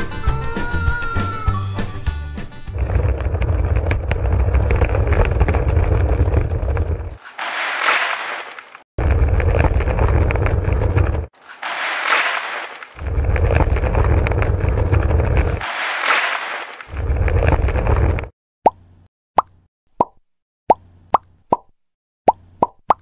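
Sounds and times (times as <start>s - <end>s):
small wheels rolling over gravel: 2.6s - 18.3s
cement powder sliding out: 2.7s - 18.3s.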